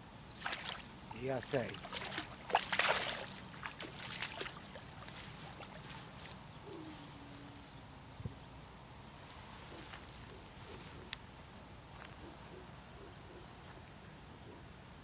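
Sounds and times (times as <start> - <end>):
fish splashing in water: 0.4 - 5.8.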